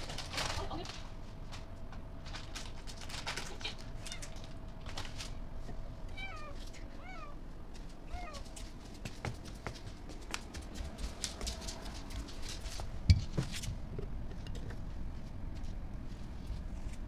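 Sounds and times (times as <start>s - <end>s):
plastic bag crinkling: 0.0s - 1.1s, 2.2s - 5.4s
cat meowing: 3.5s - 4.5s, 6.1s - 7.4s, 8.1s - 8.5s.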